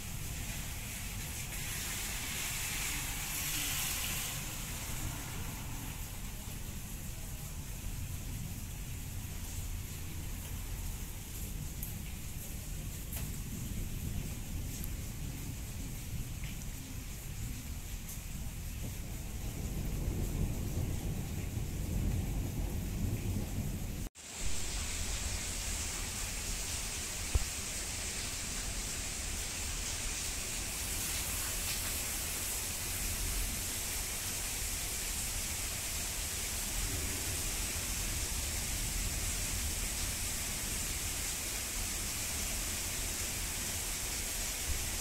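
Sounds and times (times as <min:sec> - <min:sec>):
heavy rain hissing: 0:00.0 - 0:45.0
low thunder rumble: 0:12.7 - 0:25.4, 0:36.6 - 0:41.1.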